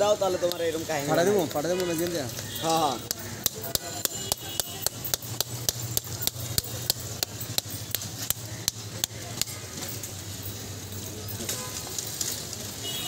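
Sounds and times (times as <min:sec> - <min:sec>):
metal rod tapping hard shell: 0:03.0 - 0:08.4.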